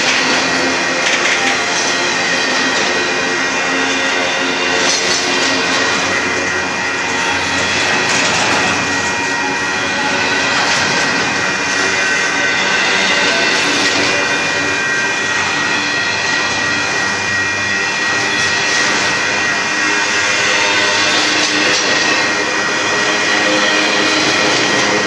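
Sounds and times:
freight train rolling past: 0.0 - 25.0.

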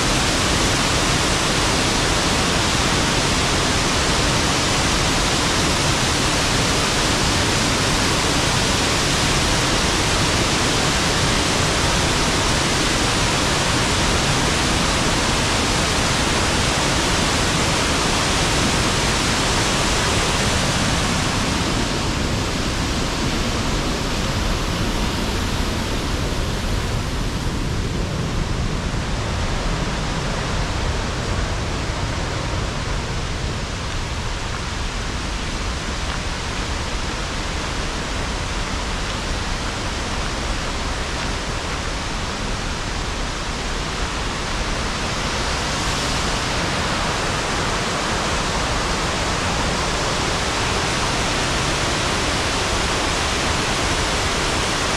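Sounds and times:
waterfall rushing: 0.0 - 54.9.

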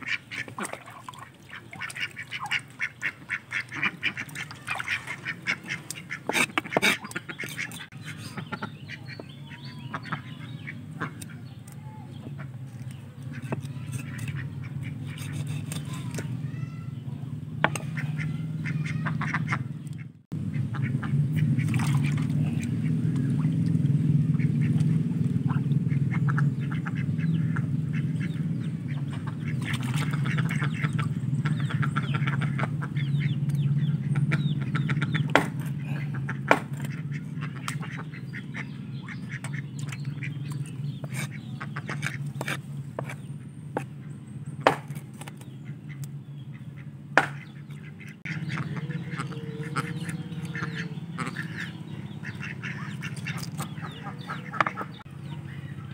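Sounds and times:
ducks quacking: 0.0 - 55.9
steady low hum: 0.0 - 55.9
knife striking chopping block: 35.3 - 35.6, 36.5 - 36.9, 44.7 - 45.3, 47.2 - 47.4.

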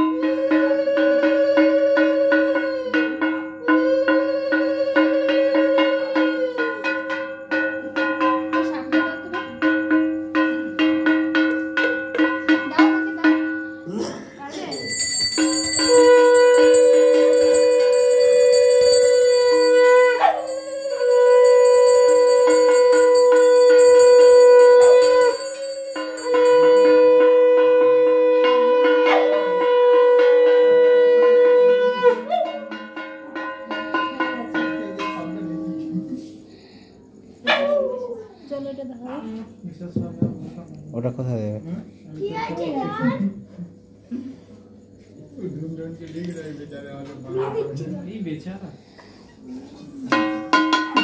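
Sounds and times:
conch shell blown: 0.0 - 9.0, 14.8 - 36.4
metal hand bell ringing: 14.5 - 27.3, 50.1 - 51.0
dog howling: 15.8 - 23.7, 26.6 - 32.7, 37.4 - 38.4.

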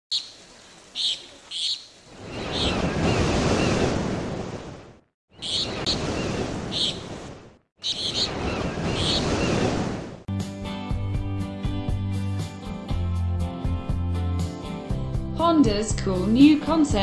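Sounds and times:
high bird chirps: 0.1 - 3.8, 5.3 - 7.1, 7.8 - 9.6
ocean surf washing in: 2.1 - 10.3.

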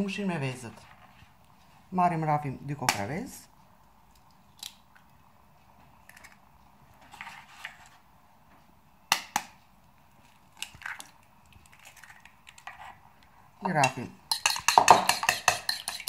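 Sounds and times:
eggshell tapping and crackling: 4.1 - 5.1, 10.3 - 12.7, 13.6 - 16.0.

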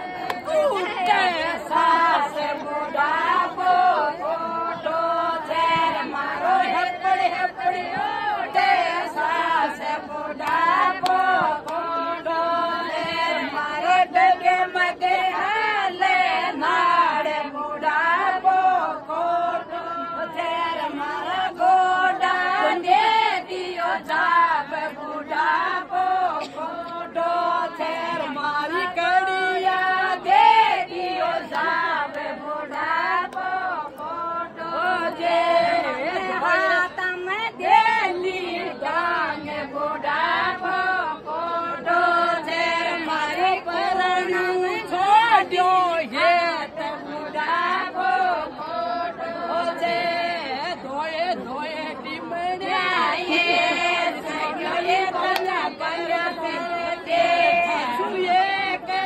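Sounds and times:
women singing folk song: 0.0 - 59.0.

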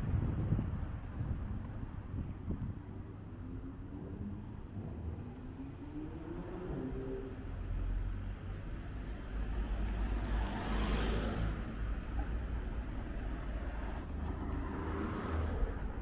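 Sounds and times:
car driving past: 9.7 - 11.9.

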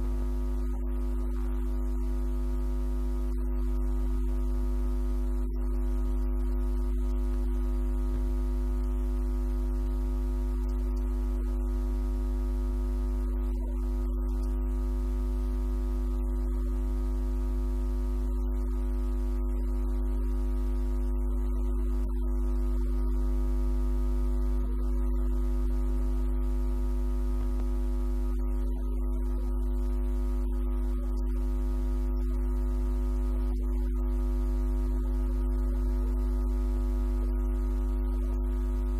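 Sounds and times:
strong low hum: 0.0 - 23.2
loud steady multi-tone hum: 0.0 - 38.9.

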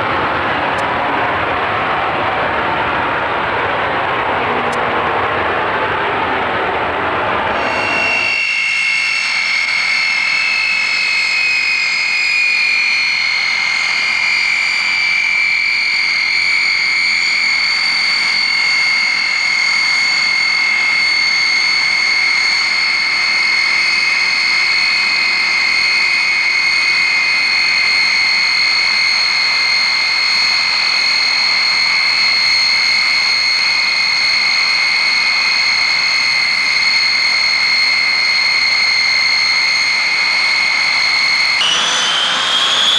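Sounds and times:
turboprop engines whining: 0.0 - 42.9.

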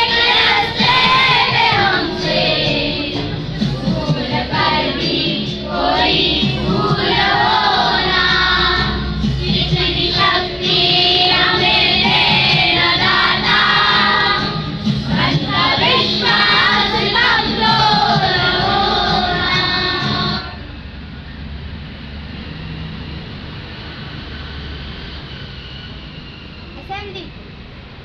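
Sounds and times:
children singing together: 0.0 - 20.6.

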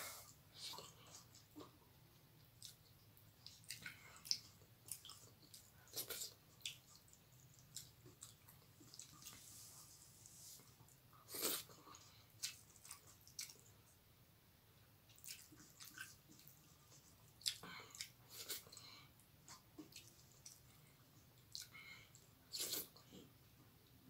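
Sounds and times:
wet chewing mouth smacks: 15.1 - 18.6.

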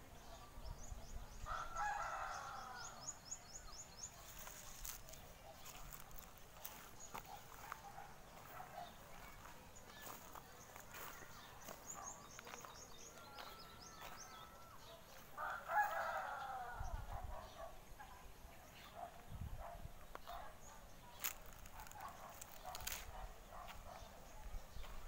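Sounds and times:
small birds chirping: 0.0 - 25.0
rooster crowing: 1.5 - 3.0, 15.4 - 16.8.

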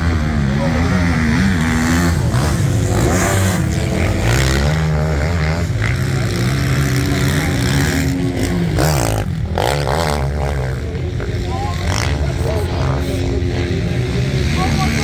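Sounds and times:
motocross bike engines revving: 0.0 - 15.0.

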